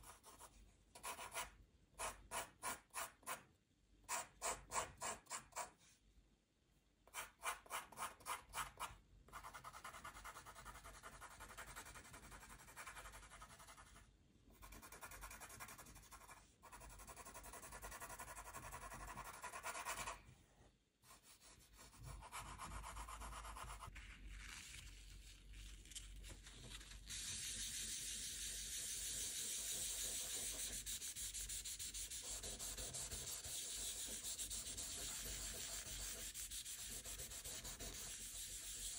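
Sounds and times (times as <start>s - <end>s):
pencil shading on paper: 7.1s - 14.0s, 14.6s - 20.2s, 21.0s - 23.9s, 27.4s - 38.9s
pencil strokes on paper: 21.0s - 24.1s, 26.7s - 38.9s.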